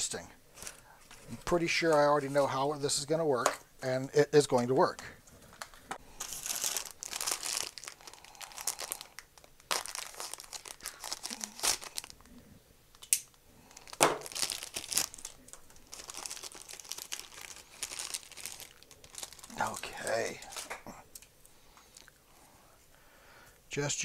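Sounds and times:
plastic and paper crinkling: 0.5 - 2.6, 4.6 - 12.3, 12.9 - 21.2.

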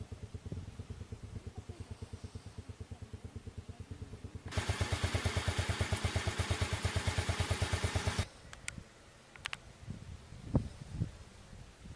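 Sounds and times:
engine with rapid pulse: 0.0 - 8.3.

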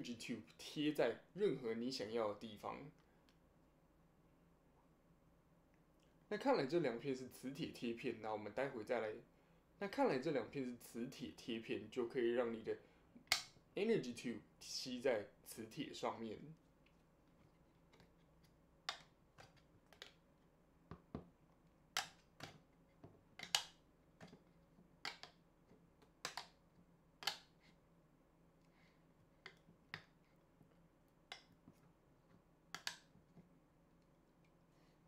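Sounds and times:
fingers clicking on plastic tube: 13.2 - 13.6, 17.8 - 20.3, 21.9 - 27.8, 29.4 - 30.2, 31.3 - 33.5.

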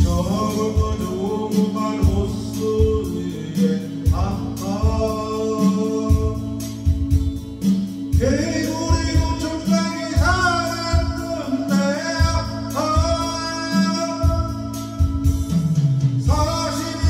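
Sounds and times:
man singing: 0.0 - 7.0, 8.1 - 17.0
guitar and beat backing track: 0.0 - 17.0.

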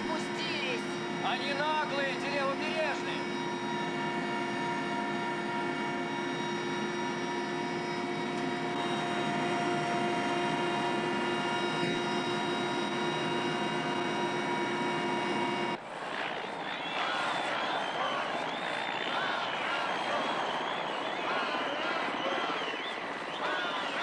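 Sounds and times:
helicopter engine and rotor noise: 0.0 - 24.0
helicopter turbine whine: 0.0 - 24.0.

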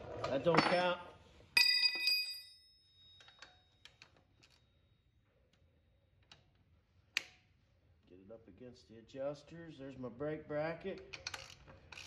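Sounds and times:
tools clicking and tapping: 3.1 - 4.6, 11.0 - 12.0.

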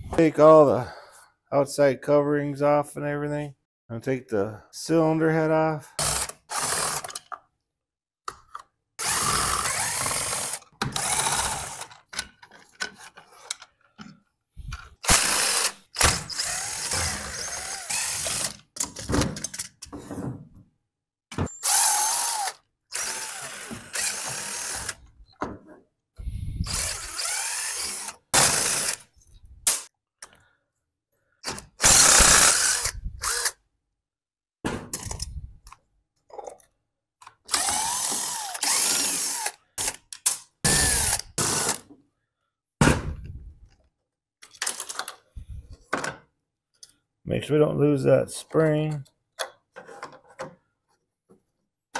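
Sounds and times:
cordless drill whirring: 9.0 - 11.9, 14.7 - 18.6, 21.6 - 25.0, 26.2 - 29.1, 31.8 - 33.6, 37.5 - 40.0, 40.7 - 41.8.

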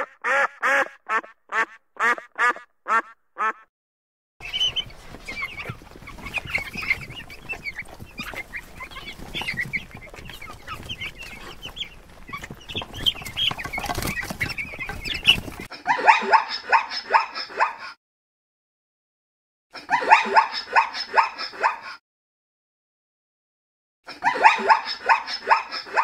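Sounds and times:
fowl clucking and chirping: 0.0 - 3.6, 4.4 - 17.8, 24.3 - 26.0.

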